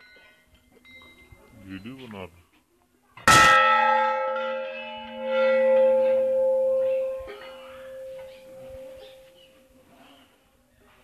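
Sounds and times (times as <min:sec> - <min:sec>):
brass bell ringing: 0:03.3 - 0:09.4.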